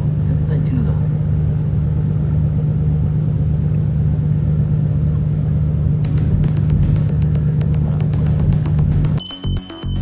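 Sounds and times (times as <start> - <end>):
sharp ticks: 6.1 - 9.2.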